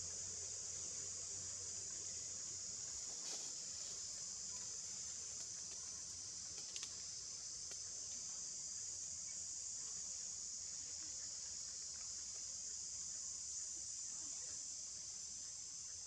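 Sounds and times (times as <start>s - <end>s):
insect chorus drone: 0.0s - 16.0s
faint clicks: 6.5s - 7.0s.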